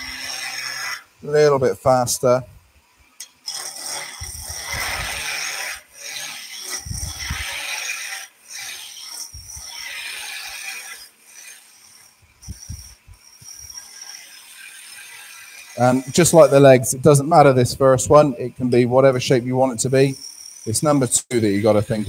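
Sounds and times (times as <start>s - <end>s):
chisel cutting wood on lathe: 0.0s - 2.2s, 3.2s - 22.0s.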